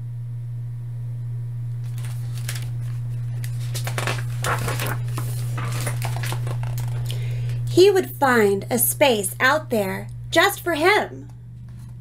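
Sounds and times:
low hum: 0.0 - 12.0
book pages turning: 1.8 - 7.2.

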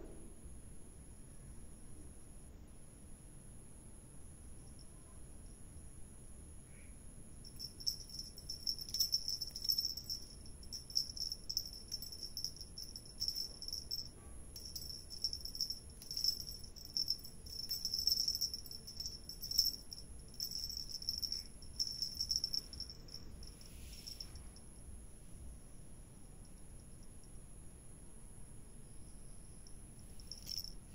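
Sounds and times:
high-pitched insect-like trill: 7.4 - 24.9, 28.8 - 30.9.

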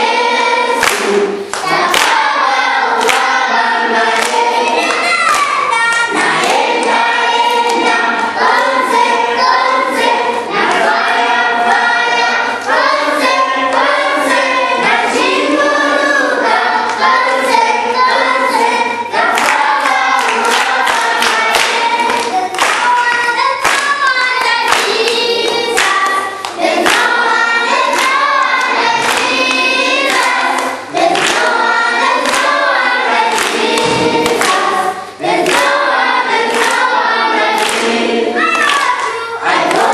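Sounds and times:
children's choir singing: 0.0 - 39.9
hand clapping: 0.6 - 9.2, 18.1 - 39.9.

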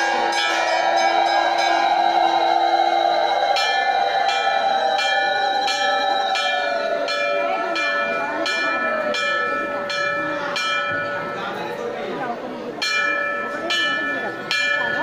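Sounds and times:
held chanting voice: 0.0 - 10.0
metal temple bell struck: 0.0 - 12.0, 12.8 - 15.0.

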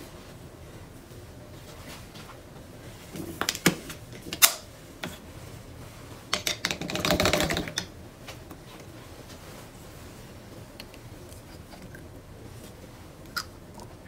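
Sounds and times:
painting tools clicking and tapping: 6.3 - 7.9.

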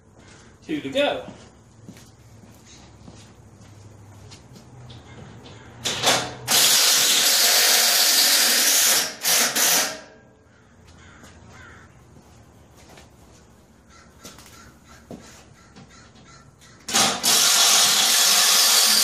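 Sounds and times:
cordless drill drilling metal: 6.5 - 10.1, 16.9 - 19.0.

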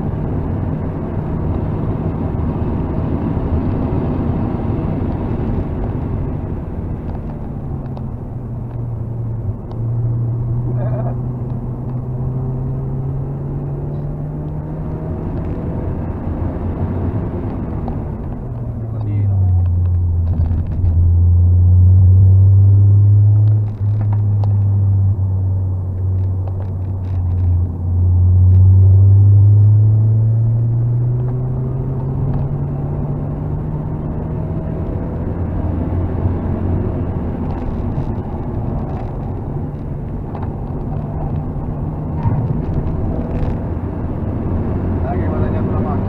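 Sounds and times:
car engine revving: 0.0 - 46.0
tyre and wind noise: 14.0 - 21.8, 22.9 - 45.1.

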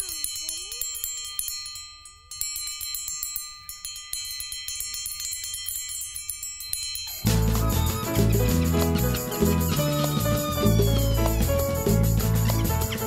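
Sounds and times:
small bells jingling: 0.0 - 13.0
full band playing: 7.3 - 13.0.

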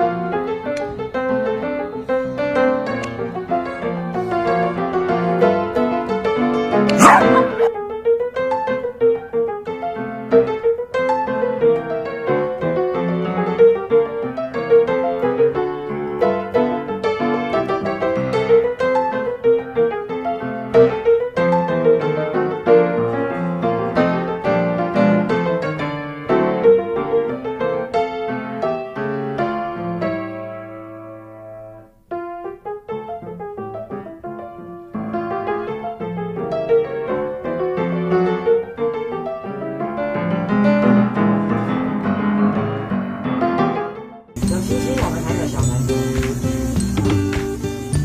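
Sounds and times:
light piano tune: 0.0 - 48.0.

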